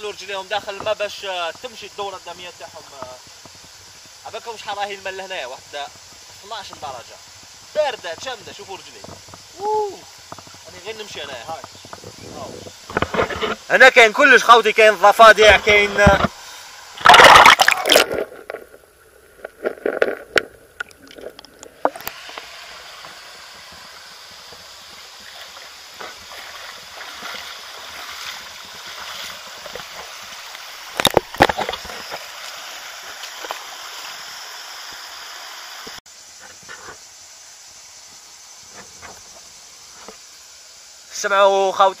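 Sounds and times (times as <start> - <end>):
river gurgling over pebbles: 15.8 - 35.9
splashes from wading: 17.0 - 18.4, 25.1 - 34.1.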